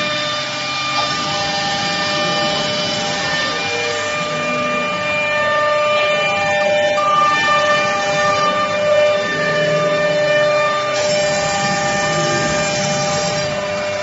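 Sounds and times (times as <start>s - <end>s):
router spindle whining: 0.0s - 14.0s
cutting hiss: 8.9s - 13.9s.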